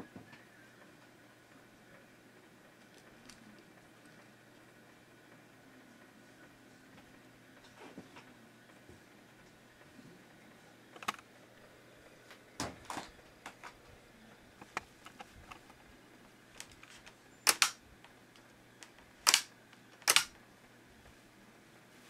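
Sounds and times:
short sharp clicks: 17.4s - 17.8s, 19.2s - 20.3s.

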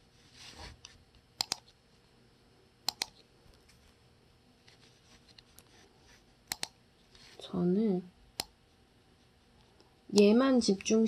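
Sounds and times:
computer mouse button clicks: 2.9s - 3.2s, 6.5s - 6.8s.

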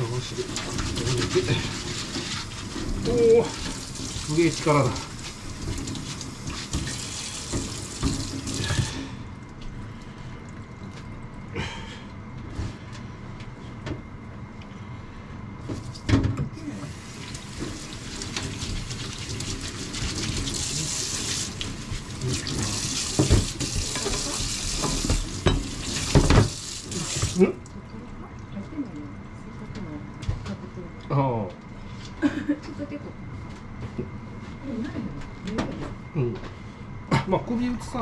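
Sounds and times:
tap running into sink: 2.0s - 9.0s, 17.0s - 27.4s
knocks of things in sink: 22.4s - 26.6s.

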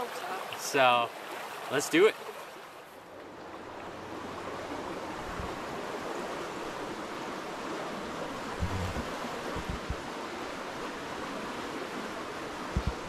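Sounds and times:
stream water rushing through pipe: 0.0s - 2.8s, 3.6s - 13.0s
low thumps: 8.6s - 10.0s, 12.8s - 13.0s.

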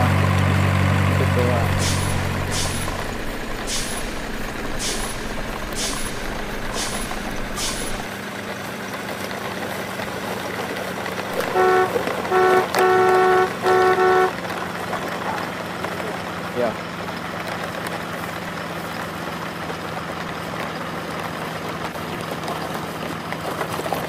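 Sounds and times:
truck engine rumble: 0.0s - 24.0s
multi-tone truck horn: 1.6s - 5.3s, 11.4s - 14.4s
short air hisses: 1.7s - 8.1s.

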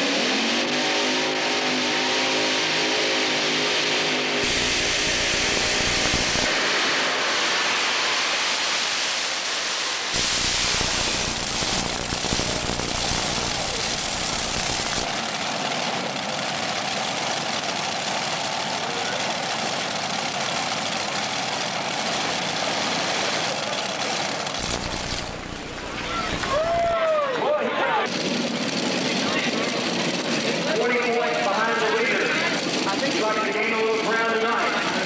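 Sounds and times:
pulling tractor engine roaring: 0.0s - 35.0s.

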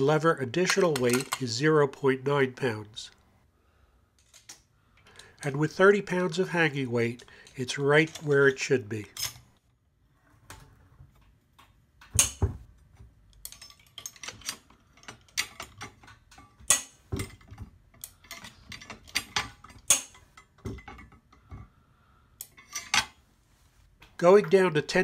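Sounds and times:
metallic clicks and clinks: 0.5s - 1.5s, 7.4s - 9.5s, 13.3s - 21.5s.

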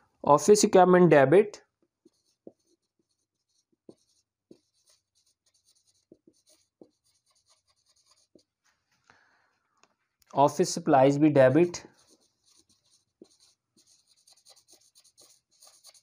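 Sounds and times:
marker scratching on whiteboard: 1.9s - 8.6s, 11.8s - 16.0s.

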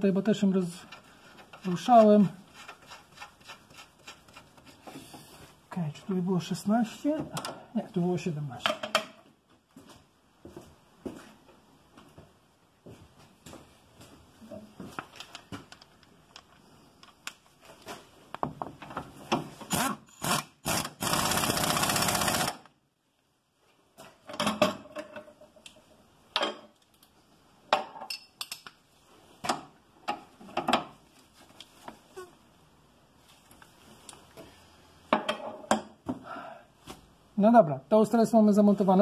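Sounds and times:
power tool running: 19.7s - 22.6s.

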